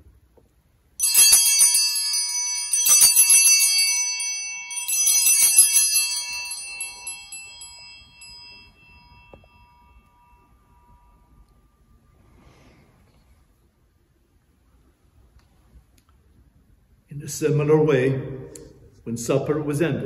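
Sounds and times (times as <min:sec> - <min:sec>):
altar bells jangling: 0:01.0 - 0:13.0.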